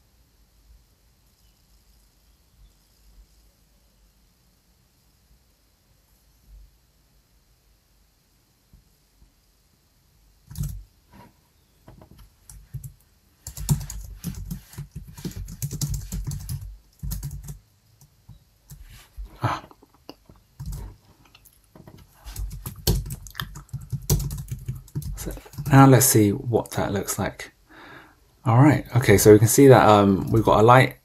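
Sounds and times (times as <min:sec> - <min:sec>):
typing on keyboard: 0:10.5 - 0:10.8, 0:12.1 - 0:18.9, 0:20.6 - 0:21.0, 0:22.0 - 0:25.8.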